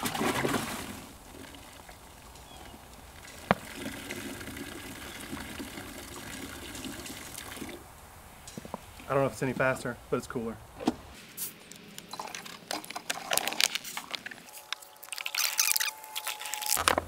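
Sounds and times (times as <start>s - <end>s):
liquid pouring from bottle: 12.1s - 16.3s.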